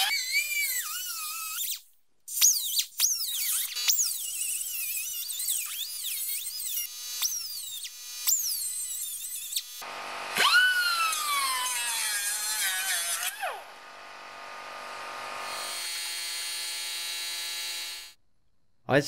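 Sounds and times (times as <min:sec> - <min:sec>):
grinder grinding metal: 0:03.5 - 0:18.2.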